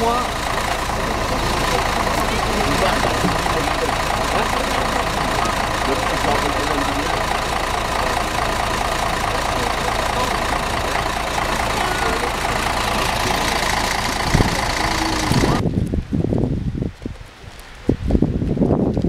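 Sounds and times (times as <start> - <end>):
diesel bus engine idling: 0.0 - 15.6
low thumps: 0.6 - 9.2, 10.2 - 15.6.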